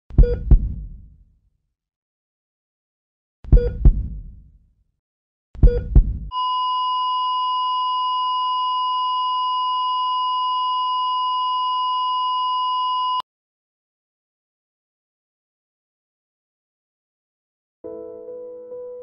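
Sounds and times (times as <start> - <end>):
loud double thud: 5.6 - 6.3
long high flatline beep: 5.7 - 13.2.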